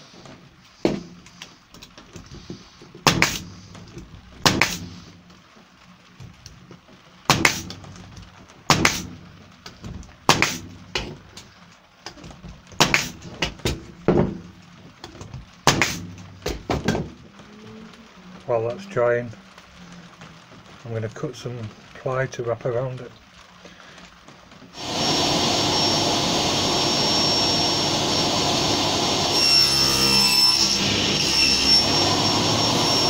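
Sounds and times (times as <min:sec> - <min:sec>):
wooden form knocking: 0:12.1 - 0:17.4.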